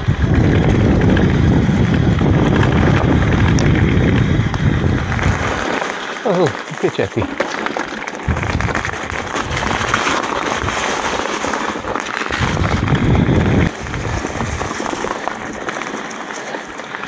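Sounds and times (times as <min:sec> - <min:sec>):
wind rumble on microphone: 0:00.0 - 0:05.8, 0:08.2 - 0:15.7
bike rattling: 0:00.0 - 0:17.0
bike tyres crackling over stones: 0:00.0 - 0:17.0.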